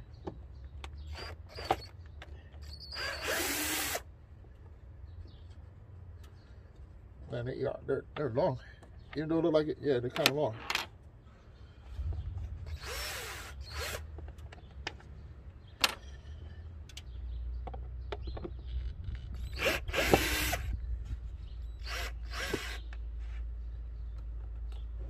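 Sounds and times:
cordless drill bursts: 0:01.1 - 0:01.9, 0:02.6 - 0:04.0, 0:12.7 - 0:14.1, 0:19.4 - 0:20.7, 0:21.8 - 0:22.8.

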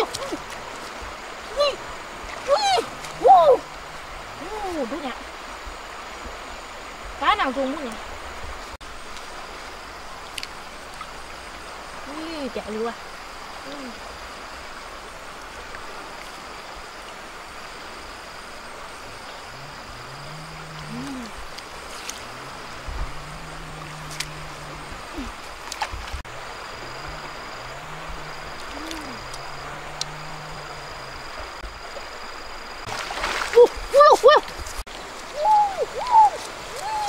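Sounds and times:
fast-flowing river rushing: 0:32.9 - 0:37.0.

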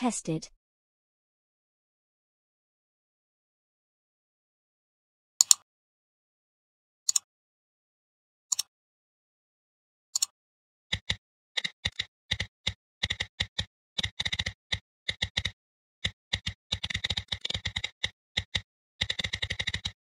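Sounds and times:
typing on keyboard: 0:10.9 - 0:20.0.

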